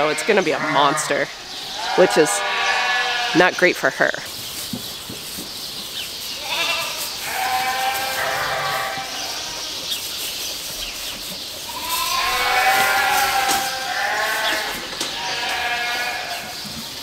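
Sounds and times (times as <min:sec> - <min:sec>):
sheep bleating: 0:00.0 - 0:03.6, 0:06.4 - 0:09.8, 0:11.7 - 0:16.5.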